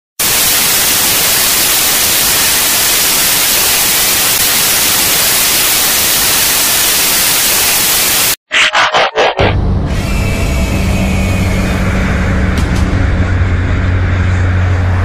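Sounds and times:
tv static hiss: 0:00.2 - 0:08.4.

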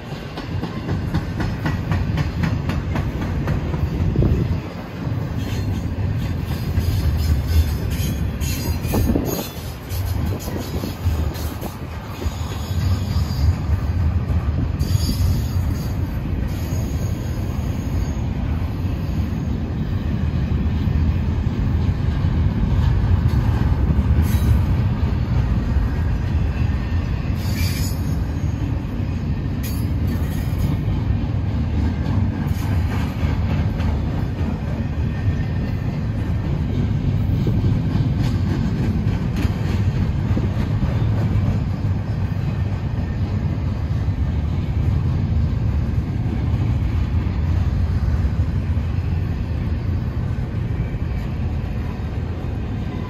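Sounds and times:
train wheels rumbling on rails: 0:00.0 - 0:53.0
high-pitched wheel squeals: 0:14.8 - 0:18.3, 0:27.4 - 0:28.6.

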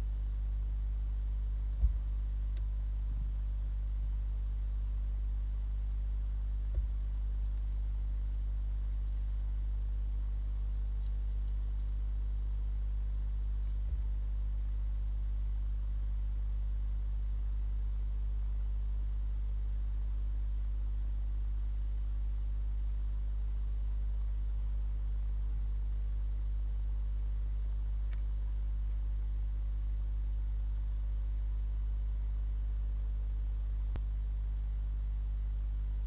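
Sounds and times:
low electrical hum with hiss: 0:00.0 - 0:36.0
faint ticks: 0:23.9 - 0:30.4.

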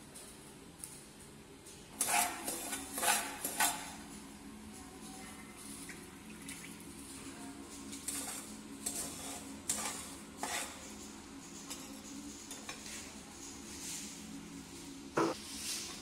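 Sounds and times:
spoon scraping frying pan: 0:02.0 - 0:03.9, 0:08.1 - 0:11.0.

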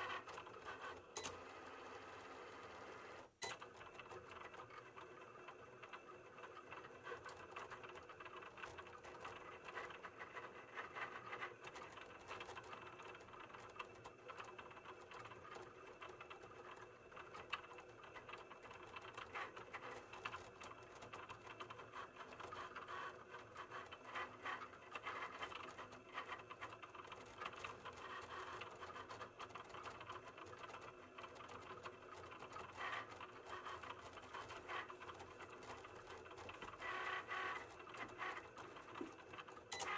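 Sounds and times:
cutting machine motor whirring: 0:21.4 - 0:39.9.

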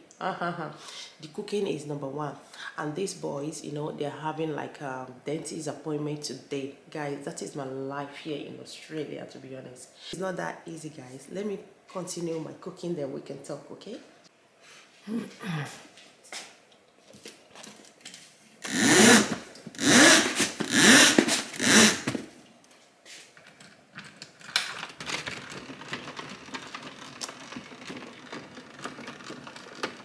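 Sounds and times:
roller blind rattling whirr: 0:18.6 - 0:22.2, 0:24.2 - 0:30.0.

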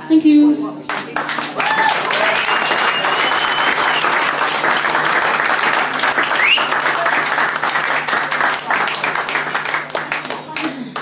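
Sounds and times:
audience applauding: 0:00.9 - 0:11.0.

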